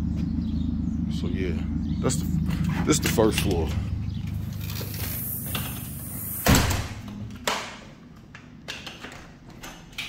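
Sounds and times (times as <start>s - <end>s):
door slamming shut: 6.2s - 7.8s.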